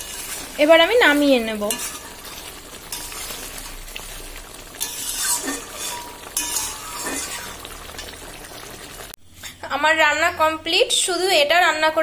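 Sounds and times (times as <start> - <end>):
metal spatula scraping pan: 0.0 - 8.1
curry sizzling: 0.0 - 12.0
spatula clinking against pan: 4.8 - 7.4.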